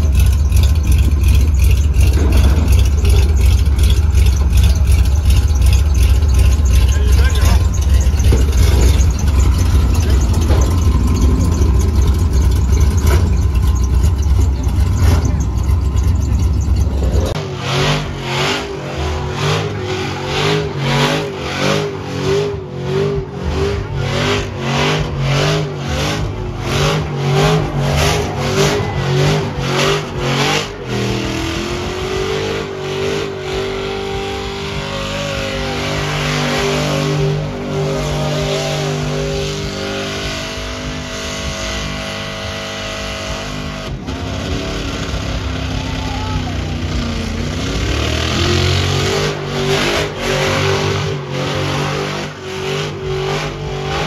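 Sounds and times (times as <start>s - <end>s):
tyres spinning: 0.0s - 17.4s
engine revving: 0.0s - 54.0s.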